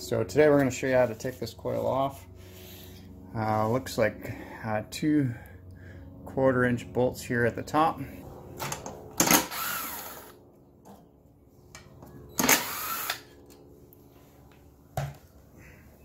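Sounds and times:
cordless drill motor whine: 9.2 - 10.4, 12.3 - 13.4.

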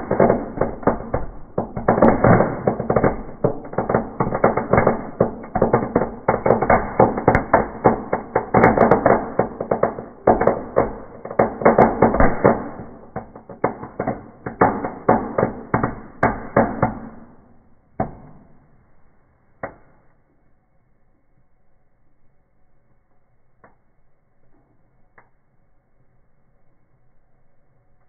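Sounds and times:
fireworks crackling in wood fire: 0.0 - 18.7.

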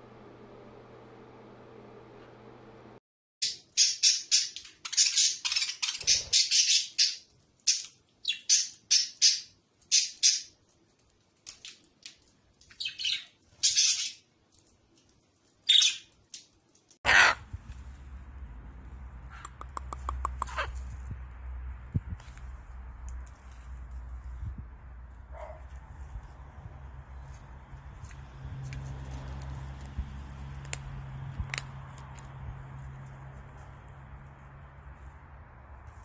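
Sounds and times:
parrots screeching: 17.1 - 17.5, 20.4 - 20.7
quick clicks: 19.3 - 20.7.

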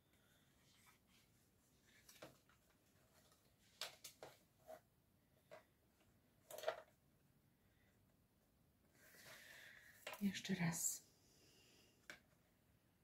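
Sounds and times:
paper rustling: 0.6 - 4.8.

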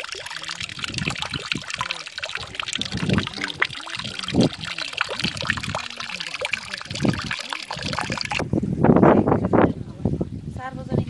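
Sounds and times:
louder water splashes: 0.0 - 8.4
water pouring into a basin: 0.0 - 8.4.

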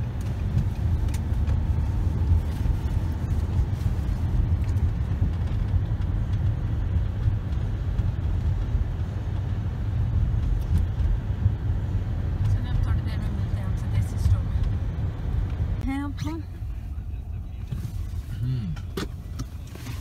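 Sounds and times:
car engine and road noise: 0.0 - 20.0.

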